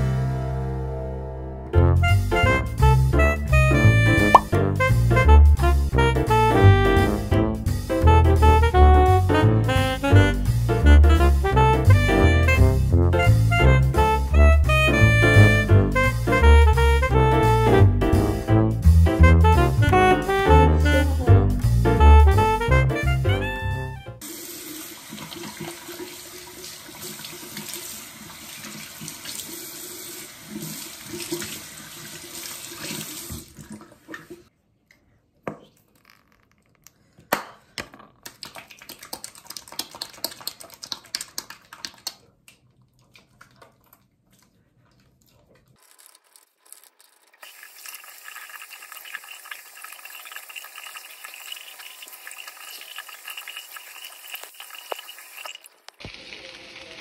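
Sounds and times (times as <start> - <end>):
water running from tap: 24.2 - 34.4, 47.3 - 57.0
water splashing over hands: 38.2 - 44.0.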